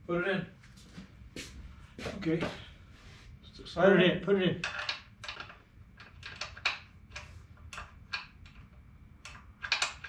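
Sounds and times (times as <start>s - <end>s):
metallic bolt clicks and scrapes: 4.6s - 10.0s.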